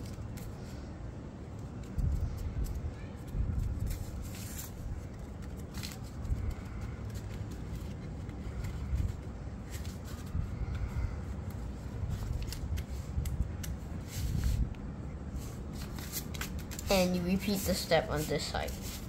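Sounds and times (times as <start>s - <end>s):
steady low rumble: 0.0s - 19.0s
paper crinkling and rustling: 1.6s - 14.7s, 15.3s - 19.0s.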